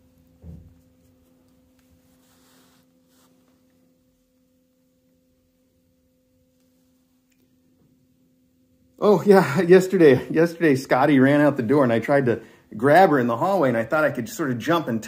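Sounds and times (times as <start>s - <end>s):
soft thump: 0.4s - 0.8s
faint rustle: 0.7s - 3.8s.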